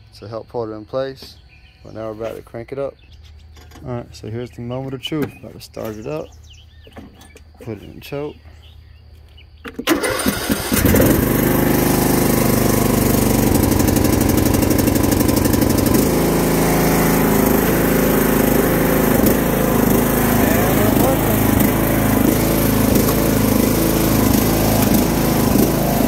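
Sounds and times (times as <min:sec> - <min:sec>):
lawn tractor engine cranking: 0:09.6 - 0:26.0
lawn tractor engine running: 0:09.7 - 0:26.0.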